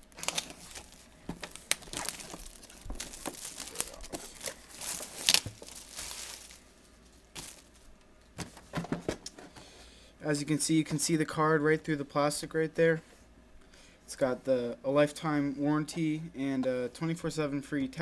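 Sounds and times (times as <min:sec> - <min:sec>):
shrink wrap tearing and crinkling: 0:00.0 - 0:08.0.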